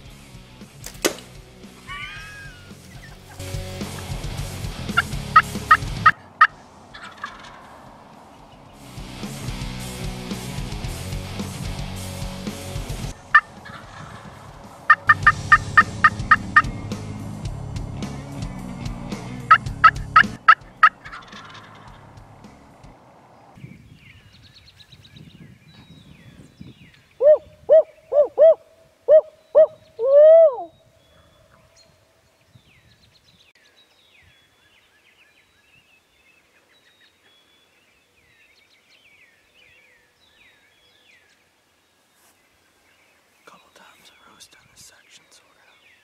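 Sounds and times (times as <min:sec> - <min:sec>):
faint high bird calls: 0:01.8 - 0:03.3, 0:23.4 - 0:46.0
owl hooting: 0:01.9 - 0:03.3, 0:14.9 - 0:16.7, 0:27.2 - 0:31.4
turkey gobble: 0:05.0 - 0:08.0, 0:13.3 - 0:16.7, 0:19.5 - 0:22.0, 0:27.2 - 0:30.7.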